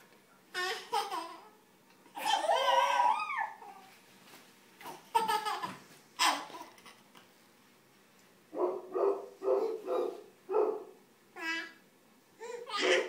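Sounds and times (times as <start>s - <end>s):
baby laughing: 0.5s - 3.9s, 4.8s - 7.1s, 12.4s - 13.0s.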